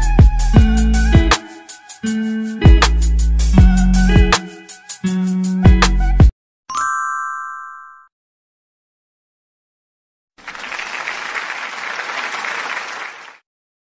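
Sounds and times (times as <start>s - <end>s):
background music: 0.0s - 6.3s
applause sound effect: 10.4s - 13.5s.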